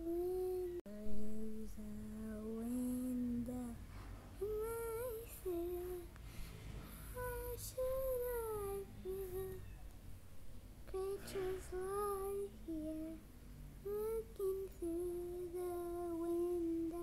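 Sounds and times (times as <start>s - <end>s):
child singing wordless melody: 0.0s - 3.8s, 4.4s - 6.2s, 6.9s - 9.8s, 10.8s - 17.0s.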